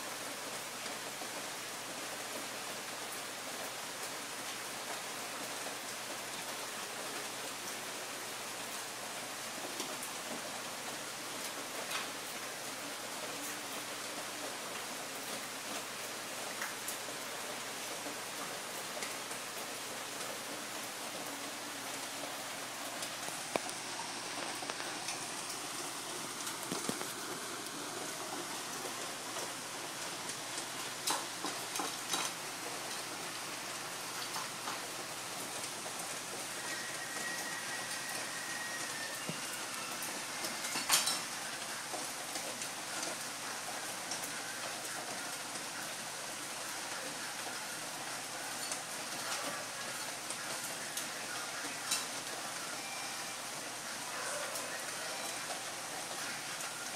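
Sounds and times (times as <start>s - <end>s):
steady hiss: 0.0s - 56.9s
faint clicks and rustles: 18.0s - 36.1s.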